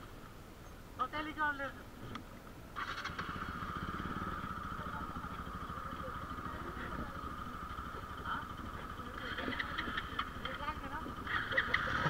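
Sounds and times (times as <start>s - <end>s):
motorcycle engine idling: 2.7s - 12.0s.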